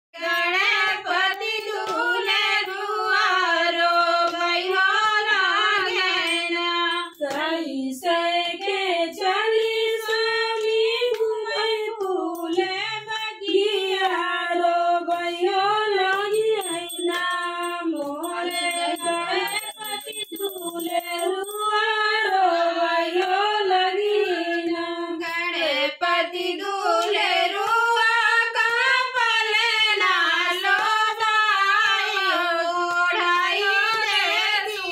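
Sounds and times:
women singing in unison: 0.2 - 34.9.

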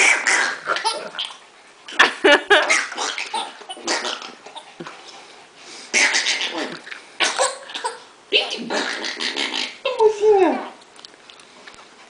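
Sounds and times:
baby laughing: 0.0 - 4.9, 6.1 - 9.0.

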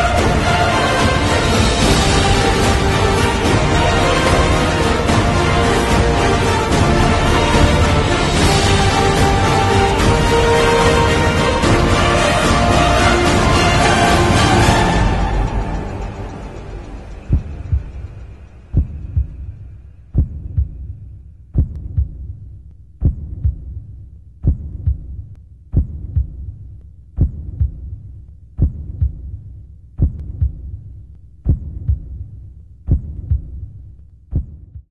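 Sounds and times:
low hum: 0.0 - 29.5
deep heartbeat-like thumps: 14.3 - 34.9.

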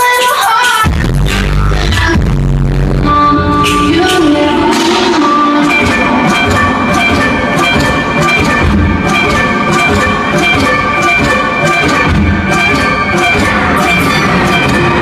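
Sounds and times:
kick drum pulses: 2.0 - 15.0
sustained high synth notes: 3.0 - 15.0
high percussive ticks: 5.6 - 15.0.

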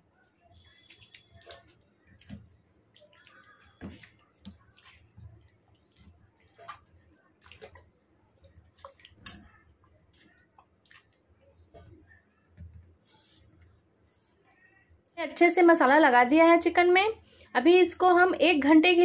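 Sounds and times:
hand squelching marinade: 0.1 - 12.1.

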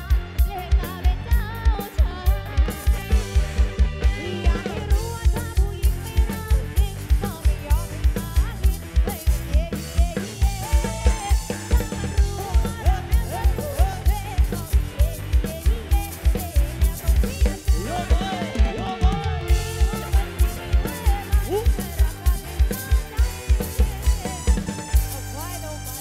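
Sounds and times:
upbeat dance song: 0.0 - 26.0
sliding keyboard lead melody: 17.5 - 26.0.

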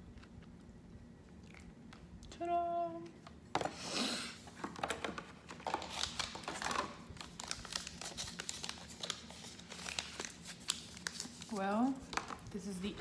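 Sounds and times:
plastic packaging crinkling: 4.6 - 12.6.

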